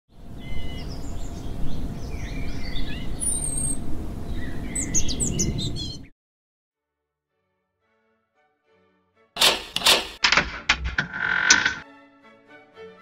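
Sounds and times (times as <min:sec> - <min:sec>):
birds chirping and calling: 0:00.4 - 0:06.1.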